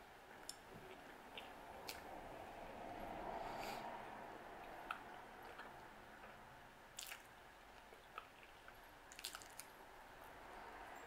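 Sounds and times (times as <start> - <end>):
person chewing: 4.6 - 6.4, 7.0 - 9.7.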